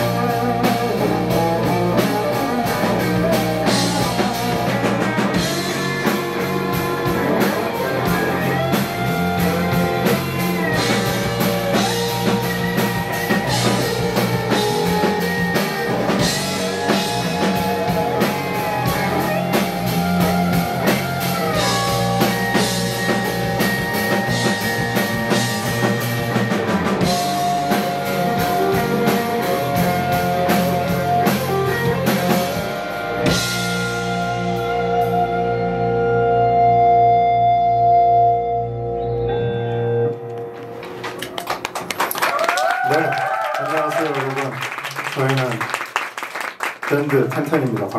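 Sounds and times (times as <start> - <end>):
drum kit: 0.0 - 36.6
electric guitar: 0.0 - 43.4
bass guitar: 0.0 - 44.6.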